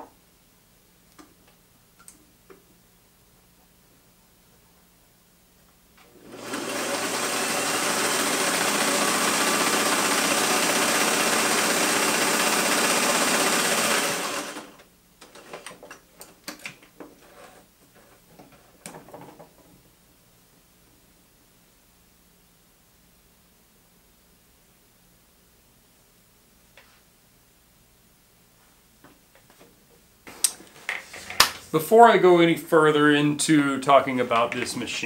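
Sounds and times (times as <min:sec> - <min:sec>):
sewing machine running: 0:06.1 - 0:14.8.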